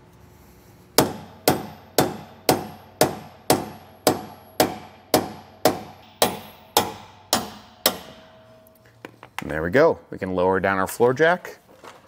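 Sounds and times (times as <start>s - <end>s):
hammer striking metal pin: 1.0s - 9.5s.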